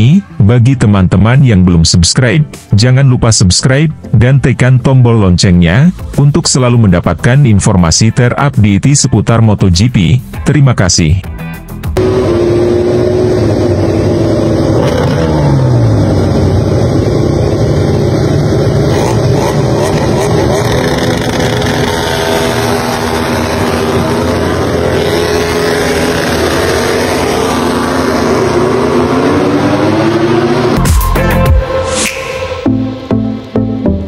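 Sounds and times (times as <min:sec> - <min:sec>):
motorcycle engines revving: 0:12.0 - 0:30.9.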